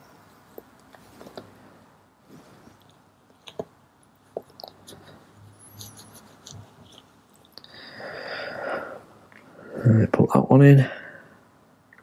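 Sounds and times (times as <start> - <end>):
cloth rubbing metal part: 4.8 - 7.3.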